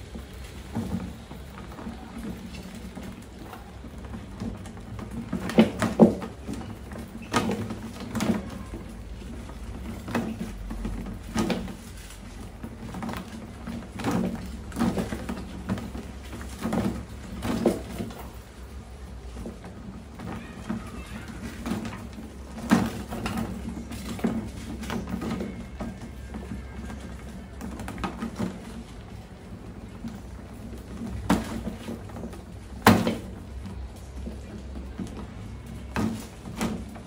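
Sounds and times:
rats scratching on plastic: 0.3s - 37.0s.

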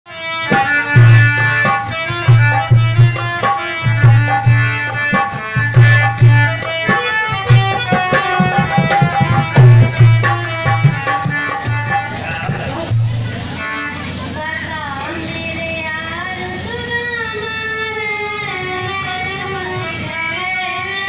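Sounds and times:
harmonium melody: 0.1s - 21.0s
hand drum rhythm: 0.4s - 13.8s.

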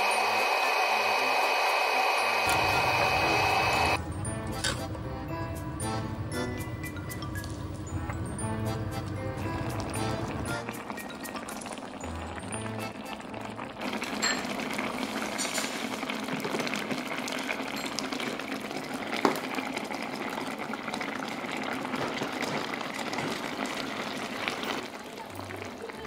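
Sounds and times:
sauce bubbling and crackling: 8.9s - 26.0s.

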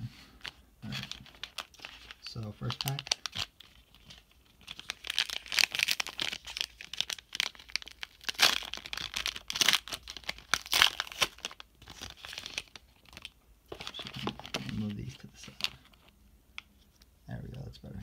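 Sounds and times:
foil wrapper crinkling and tearing: 0.4s - 16.1s.

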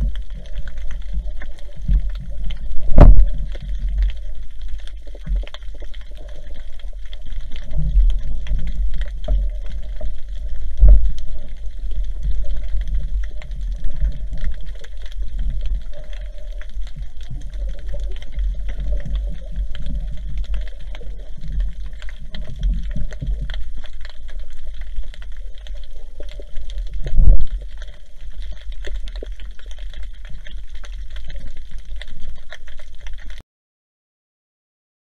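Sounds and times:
underwater clicks: 0.0s - 33.4s
underwater rumble of water: 0.0s - 33.4s
loud thump: 2.9s - 3.3s.

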